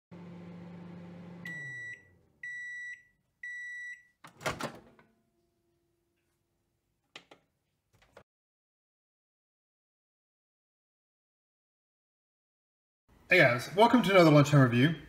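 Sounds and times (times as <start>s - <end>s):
microwave oven humming: 0.1s - 3.8s.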